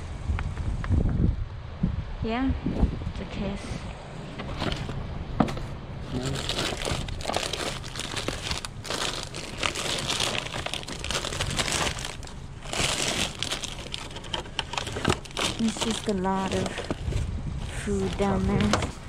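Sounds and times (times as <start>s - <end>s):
plastic wrappers crinkling: 6.1s - 19.0s.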